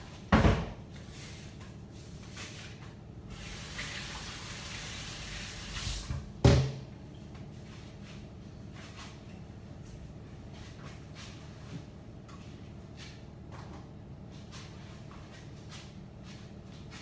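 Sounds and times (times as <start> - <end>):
kitchen tap running: 3.4 - 6.1.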